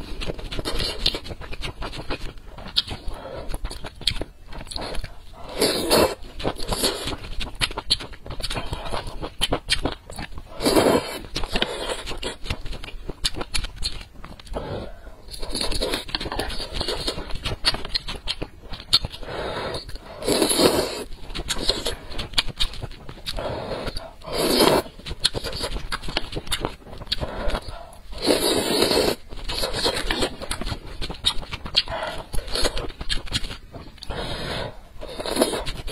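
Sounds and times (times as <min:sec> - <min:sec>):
chewing and mouth sounds: 0:00.0 - 0:35.9
noodle slurping: 0:04.7 - 0:07.3, 0:19.2 - 0:22.1, 0:23.3 - 0:25.9, 0:27.1 - 0:30.4.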